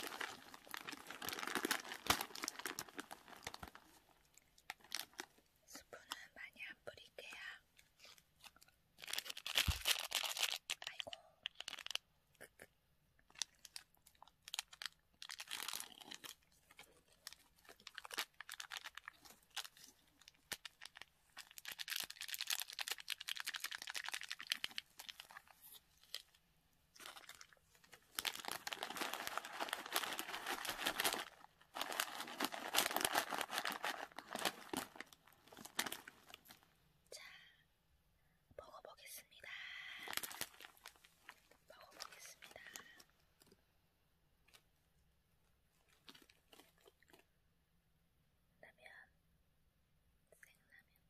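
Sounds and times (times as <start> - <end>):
foil packaging crinkling: 0.0 - 4.0, 9.0 - 12.0, 13.3 - 26.4, 27.0 - 36.6, 40.0 - 43.0.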